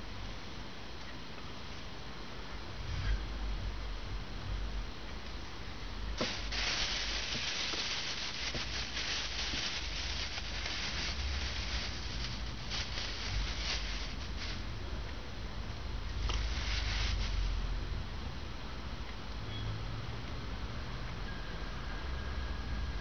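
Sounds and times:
plastic bag crinkling: 6.2s - 14.7s, 16.2s - 17.6s.

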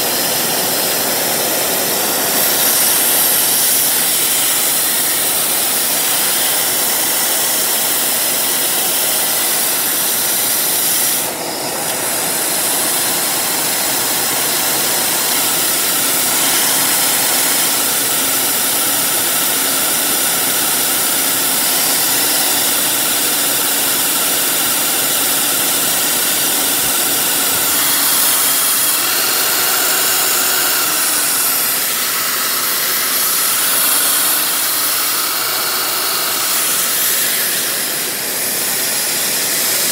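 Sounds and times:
handheld vacuum cleaner whining: 0.0s - 39.9s.

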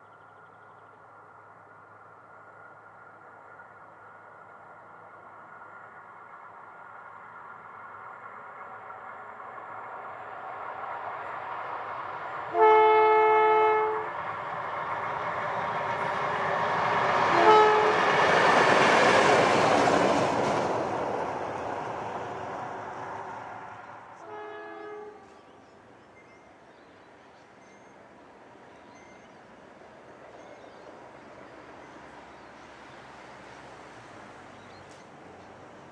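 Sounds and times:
diesel locomotive engine and wheels: 0.0s - 35.9s
locomotive horn: 12.5s - 14.2s, 17.3s - 18.2s, 24.2s - 25.6s.

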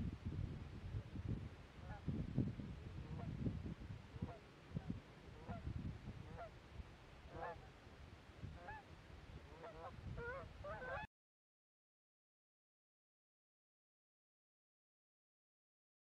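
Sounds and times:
wind rumble on microphone: 0.0s - 11.1s
geese honking: 7.3s - 7.6s, 9.5s - 11.1s.

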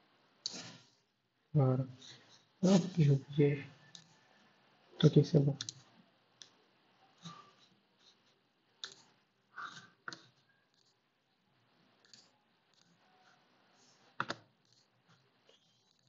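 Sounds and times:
mouse and keyboard clicks: 5.0s - 5.8s, 8.8s - 11.0s, 12.0s - 12.9s, 14.1s - 14.9s.

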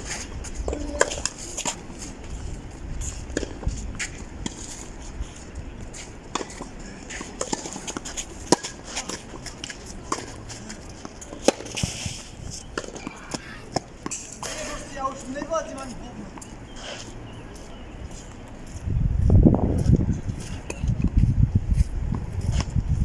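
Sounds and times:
tennis balls struck and bouncing: 0.5s - 2.4s, 3.0s - 15.5s.

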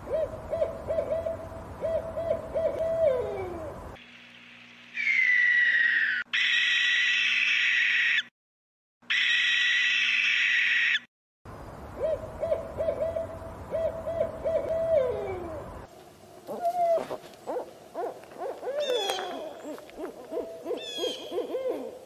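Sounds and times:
owl hooting: 0.0s - 3.8s, 5.0s - 8.3s, 12.0s - 15.7s, 16.5s - 22.0s
higher gliding owl calls: 0.1s - 3.8s, 5.0s - 8.3s, 9.1s - 11.1s, 12.0s - 15.7s, 16.5s - 22.0s.

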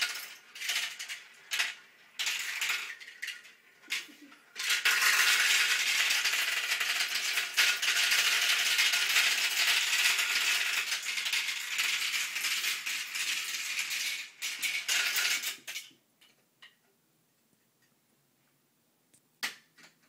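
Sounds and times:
marbles clattering down plastic run: 0.0s - 16.0s.

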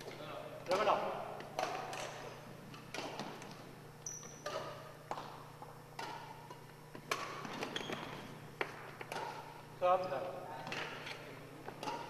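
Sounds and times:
rackets striking shuttlecock: 0.0s - 12.0s
sneakers squeaking on hardwood: 3.0s - 9.6s.

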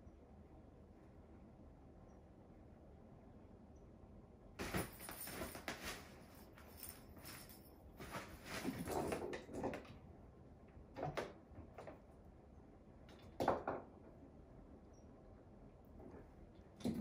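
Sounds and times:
rustles: 4.6s - 9.2s.

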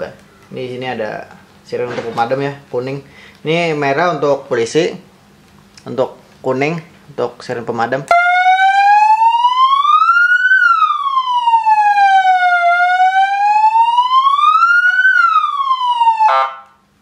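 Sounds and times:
electronic fire siren wailing: 8.1s - 16.8s.

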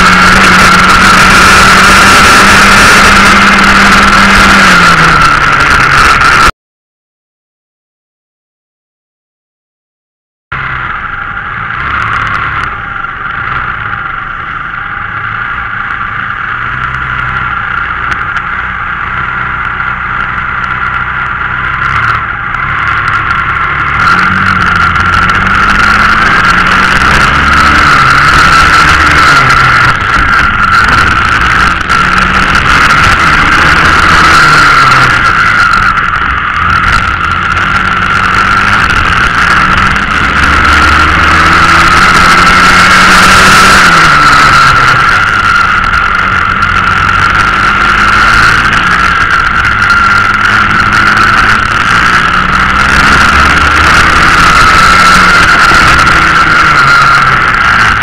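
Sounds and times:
high-pitched rush: 0.0s - 6.5s, 10.5s - 58.0s
kart engine revving: 0.0s - 6.5s, 10.5s - 58.0s.

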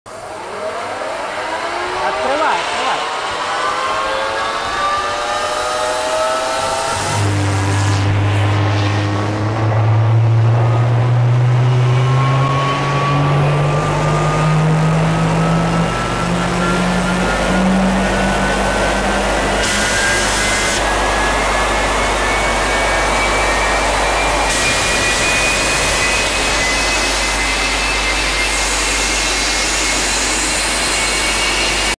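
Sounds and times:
gas turbine whine rising: 0.1s - 32.0s
low hum: 2.6s - 32.0s
rush of air and combustion: 4.8s - 14.4s, 16.7s - 32.0s.

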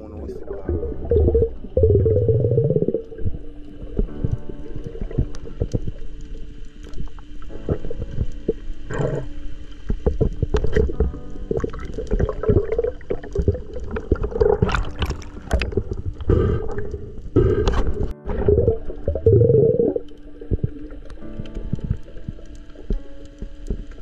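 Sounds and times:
underwater gurgling and rushing: 0.2s - 24.0s.

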